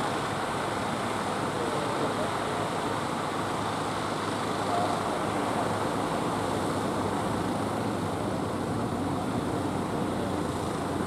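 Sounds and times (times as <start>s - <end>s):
boat engines droning: 0.0s - 11.0s.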